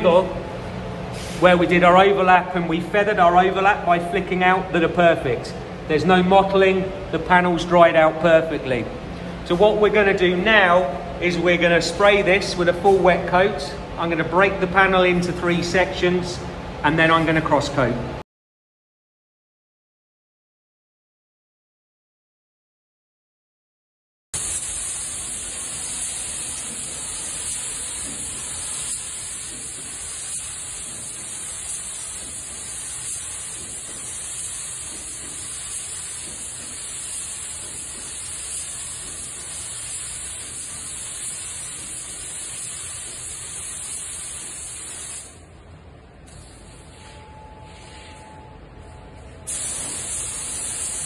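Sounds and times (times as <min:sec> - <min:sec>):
paint spray gun hissing: 0:01.1 - 0:01.4, 0:24.4 - 0:45.4, 0:49.5 - 0:51.0.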